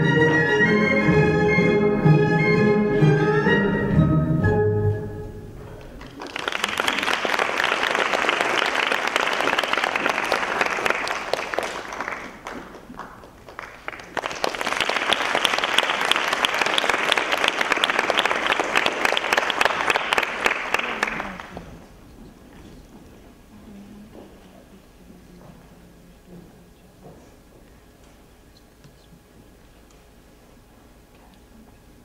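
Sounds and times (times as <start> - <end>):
audience applauding: 5.8 - 21.8.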